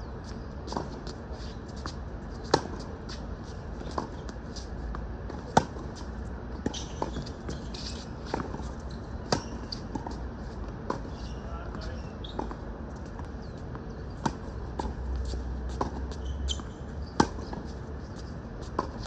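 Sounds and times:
distant tennis ball hits and bounces: 5.3 - 10.2, 14.1 - 17.8.

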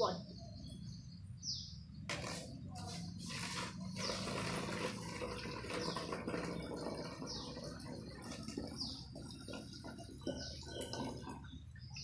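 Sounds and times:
water pouring into bottle: 3.3 - 12.0.

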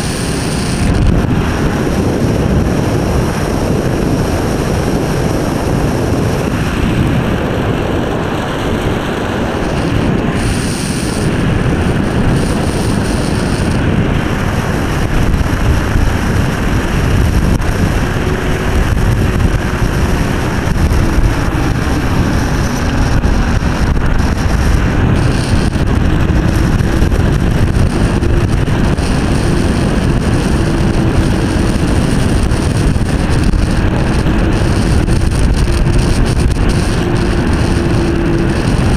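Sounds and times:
scooter tyres on asphalt: 0.0 - 38.9
wind over microphone: 0.0 - 38.9.

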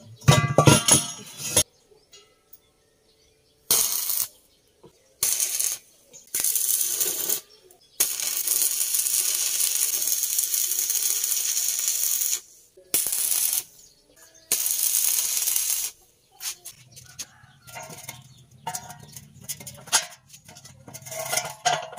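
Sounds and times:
metallic clank: 0.2 - 1.6, 17.5 - 21.9
arc welding crackling hiss: 3.7 - 4.3, 5.2 - 13.8, 14.5 - 16.8.

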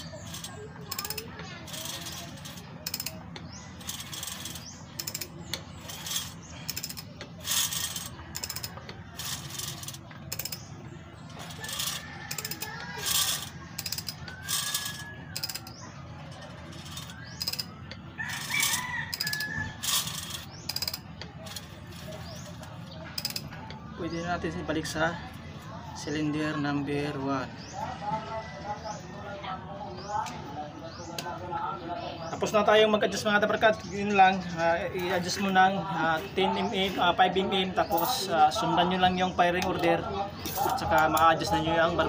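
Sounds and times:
ratchet wrench clicking: 0.0 - 15.8, 16.4 - 22.5, 23.2 - 23.5.

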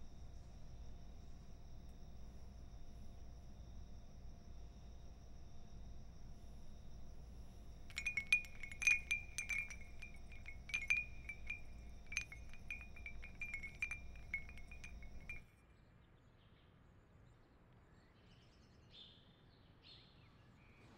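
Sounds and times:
wind chime jingling: 7.9 - 15.4.

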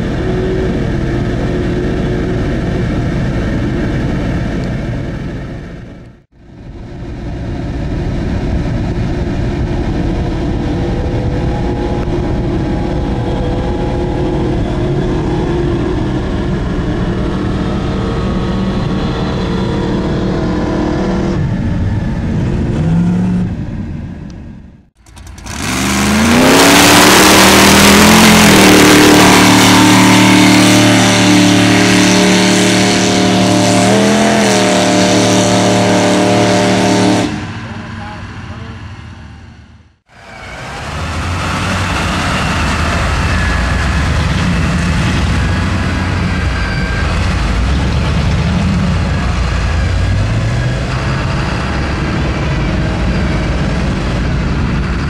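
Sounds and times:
steady engine drone: 0.0 - 55.0
truck engine revving hard: 25.0 - 37.7, 40.6 - 55.0.

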